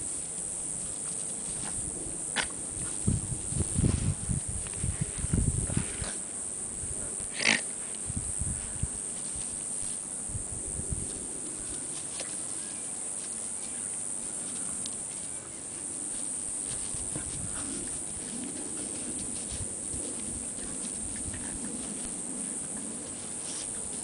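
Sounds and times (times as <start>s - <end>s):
steady high-pitched hiss: 0.0s - 24.0s
dogs play growling: 16.7s - 24.0s.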